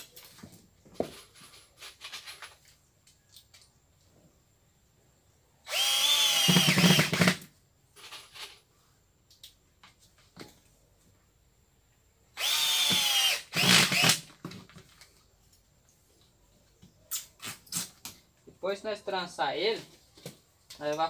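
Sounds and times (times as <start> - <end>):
cordless drill driving a screw: 5.7 - 7.4, 12.4 - 14.3.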